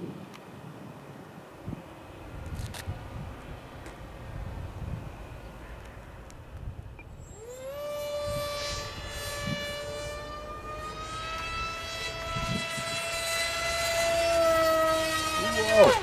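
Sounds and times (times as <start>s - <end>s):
electric motor and propeller whining: 1.2s - 16.0s.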